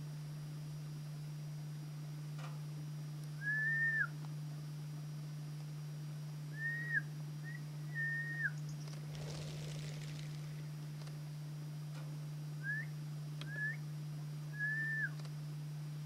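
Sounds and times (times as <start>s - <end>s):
camera hum: 8.6s - 12.0s
short clear whistles: 12.6s - 13.8s.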